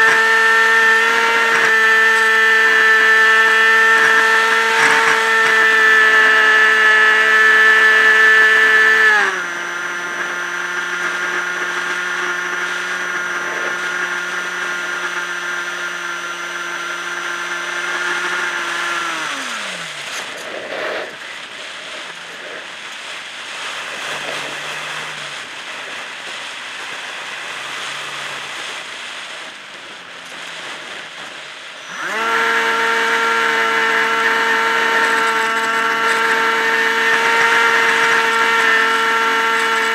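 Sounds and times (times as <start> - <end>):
electric motor propeller whine: 0.0 - 39.9.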